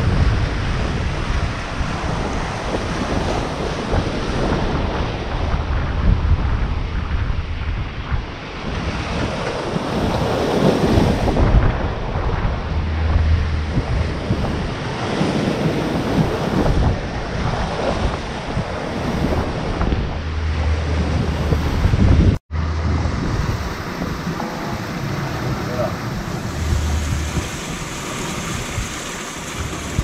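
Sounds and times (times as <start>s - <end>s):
seawater rushing along hull: 0.0s - 30.0s
wind buffeting microphone: 0.0s - 30.0s
bow wave breaking in spray: 15.9s - 30.0s.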